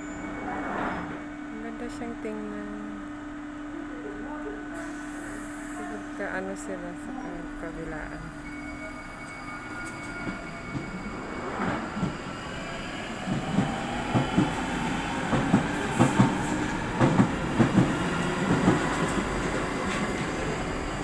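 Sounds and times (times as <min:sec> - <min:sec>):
train rumble: 0:09.6 - 0:21.0.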